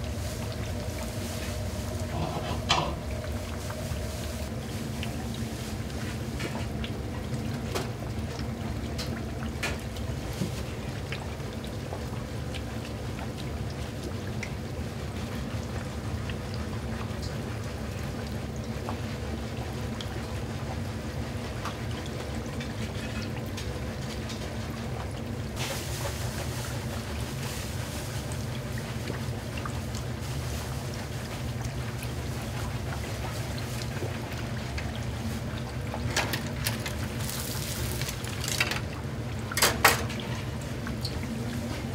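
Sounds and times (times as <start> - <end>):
steady low hum: 0.0 - 14.1
oil bubbling in deep fryer: 0.0 - 41.9.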